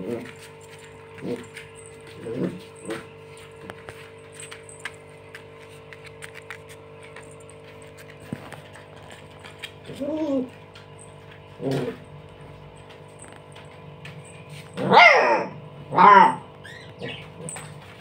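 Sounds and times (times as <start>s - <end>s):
electric fan humming: 0.0s - 18.0s
puppy barking: 14.8s - 17.6s.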